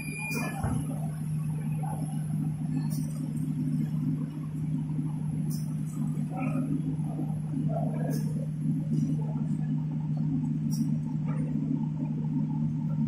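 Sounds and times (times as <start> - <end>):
machinery humming: 0.0 - 13.0.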